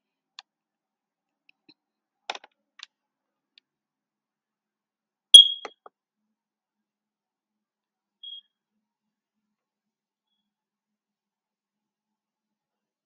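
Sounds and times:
high-pitched electronic beep: 5.4s - 5.8s.

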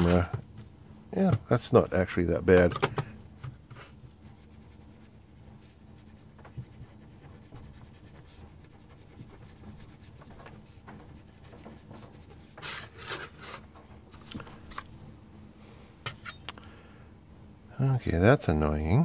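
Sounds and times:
handling ticks: 2.2s - 12.8s
dispenser pump clicks: 2.5s - 3.5s
cotton swab scrubbing plastic: 3.8s - 12.9s.

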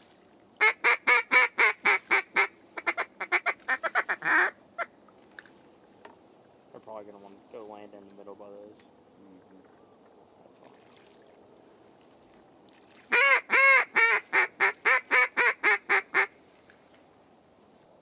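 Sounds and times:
duck call quacks: 0.6s - 4.9s, 13.1s - 16.3s.

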